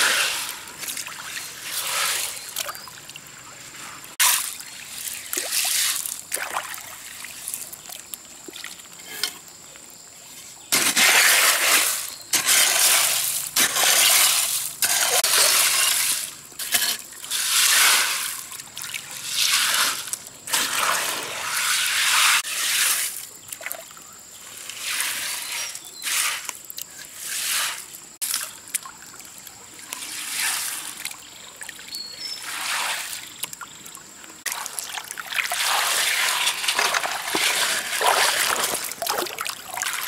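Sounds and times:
digging scrapes in gravel: 0.0s - 0.8s, 1.4s - 2.6s, 10.5s - 18.5s, 19.2s - 23.3s, 24.6s - 28.4s, 30.0s - 31.0s, 32.2s - 33.3s, 35.5s - 39.2s
pebbles grating and clinking: 10.7s - 18.5s, 35.8s - 39.0s
water sloshing: 28.2s - 40.0s.

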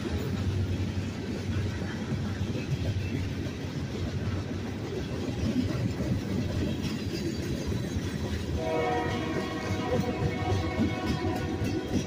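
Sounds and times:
steel wheels rumbling on rails: 0.0s - 12.0s
train horn chord: 8.5s - 12.0s.

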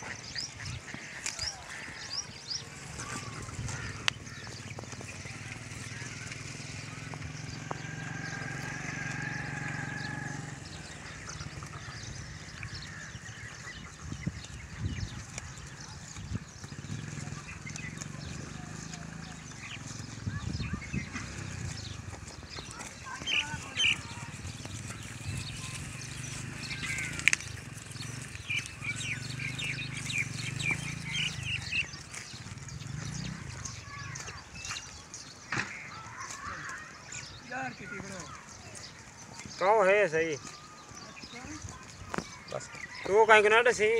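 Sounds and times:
goats browsing leafy fodder: 0.0s - 43.9s
small birds chirping: 0.0s - 43.9s
small engine whining: 2.7s - 13.0s, 15.7s - 34.6s.

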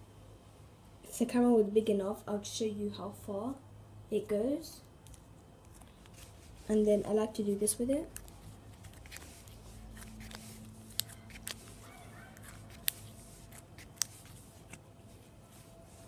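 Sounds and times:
hands working slime: 5.0s - 16.0s.

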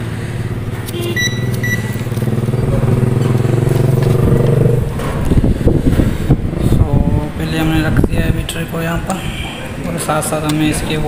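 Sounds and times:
vehicle engine running: 0.0s - 6.7s
meter beeps: 0.9s - 2.1s.

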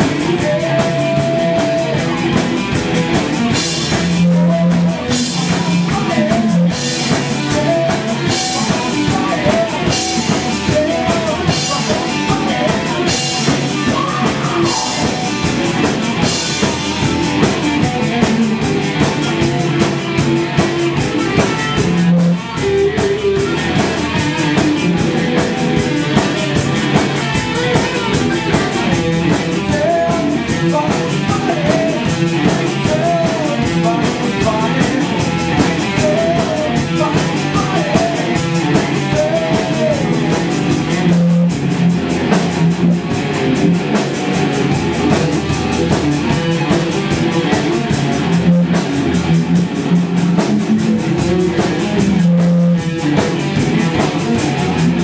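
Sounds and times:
man singing: 0.0s - 41.7s, 44.9s - 49.2s, 50.2s - 55.0s
bass guitar: 0.0s - 55.0s
drum kit: 0.0s - 55.0s
electric guitars: 0.0s - 55.0s.

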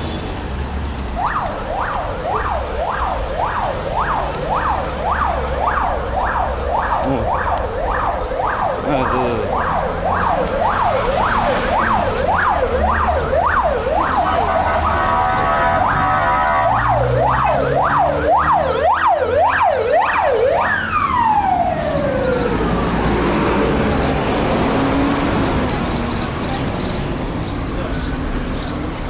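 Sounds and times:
traffic rumble: 0.0s - 29.0s
emergency siren yelping: 1.2s - 24.4s.

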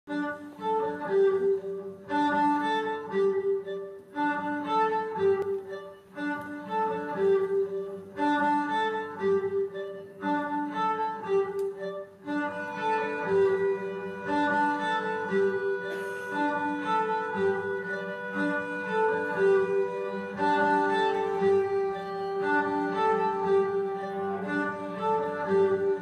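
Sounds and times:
instrumental music held notes: 0.1s - 26.0s.

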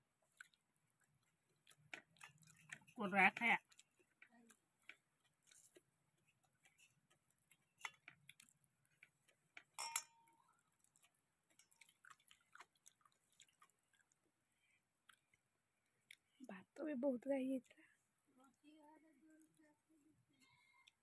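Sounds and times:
soft chewing: 0.1s - 16.8s, 17.6s - 21.0s
food clicking on steel plates: 9.5s - 10.4s
bright clink: 9.8s - 10.3s.

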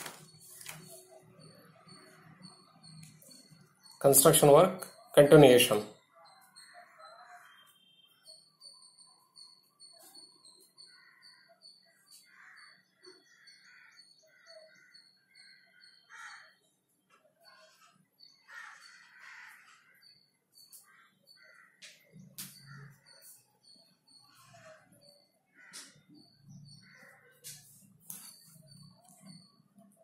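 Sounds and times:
bird calls: 6.2s - 30.0s.

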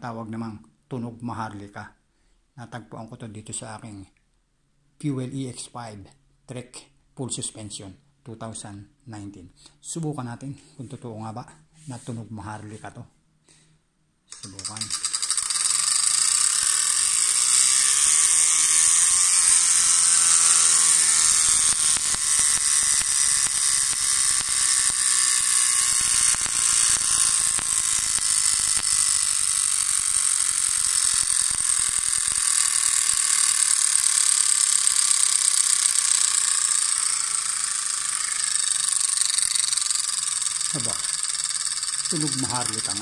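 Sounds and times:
bike freehub ratcheting buzz: 14.3s - 43.0s.

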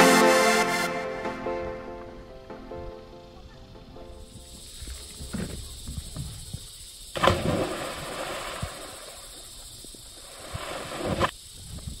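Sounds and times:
loud splash into water: 7.2s - 9.0s.

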